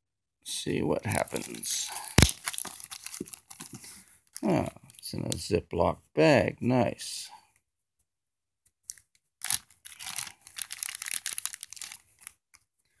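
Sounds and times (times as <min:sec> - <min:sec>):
plastic bag crinkling: 0:01.1 - 0:04.6, 0:09.4 - 0:12.4.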